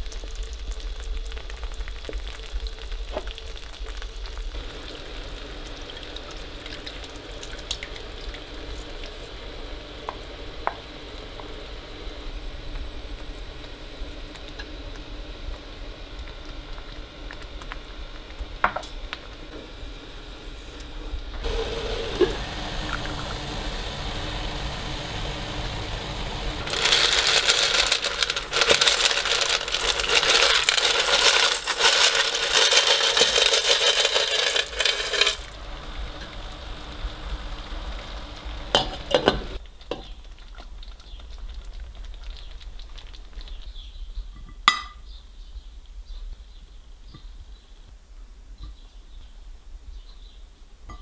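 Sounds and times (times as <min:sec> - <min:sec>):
sauce simmering in a pan: 0:00.0 - 0:44.4
boiling water hissing and bubbling: 0:00.0 - 0:44.9
dry pasta poured in: 0:26.5 - 0:35.6
wooden spoon stirring: 0:26.6 - 0:35.6.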